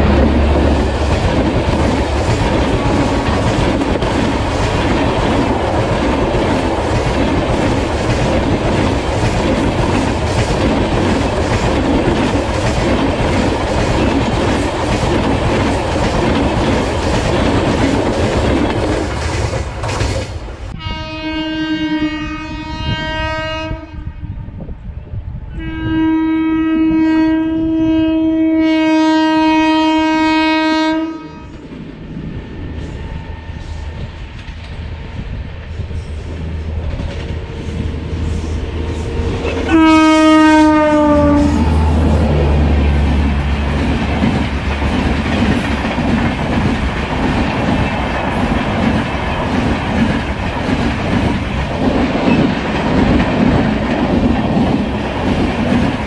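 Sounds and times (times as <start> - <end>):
train wheels clattering over rail joints: 0.0 - 20.7, 43.0 - 56.0
low rumble of approaching train: 0.0 - 56.0
locomotive horn blasts: 20.8 - 24.6, 25.6 - 31.6, 39.2 - 43.0.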